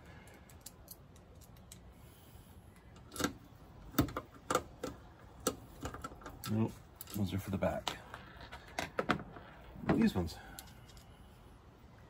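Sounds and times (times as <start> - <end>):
small metal hardware clicking: 0.3 - 1.9.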